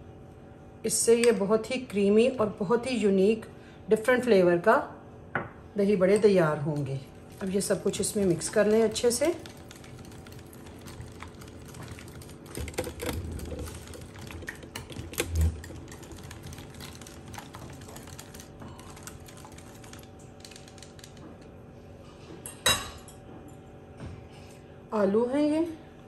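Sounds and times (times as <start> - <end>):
metal spoon stirring in ceramic bowl: 7.1 - 20.9.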